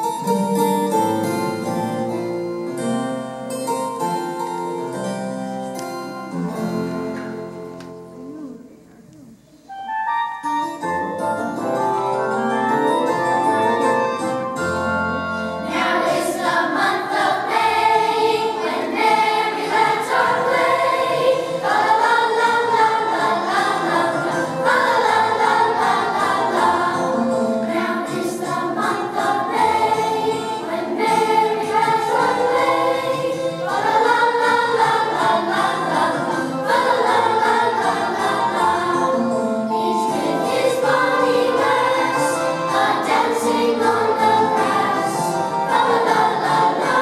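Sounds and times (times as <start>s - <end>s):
piano: 0.0s - 47.0s
children's choir singing: 14.7s - 47.0s.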